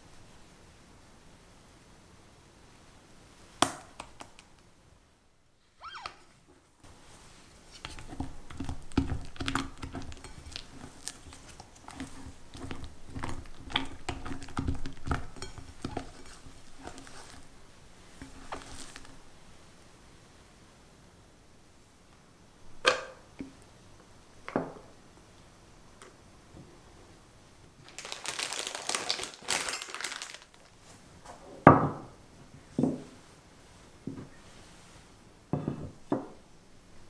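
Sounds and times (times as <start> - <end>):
spatula folding thick cream: 6.9 - 19.3.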